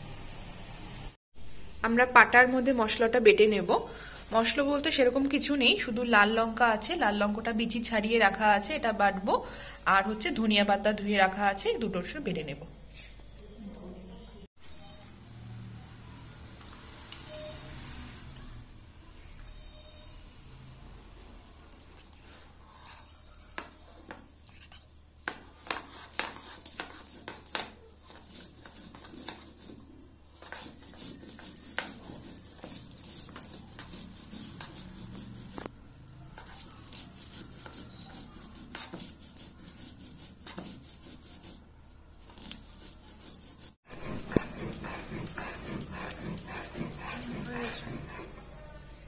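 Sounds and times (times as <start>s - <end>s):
stone muller grinding on slab: 42.3s - 48.5s.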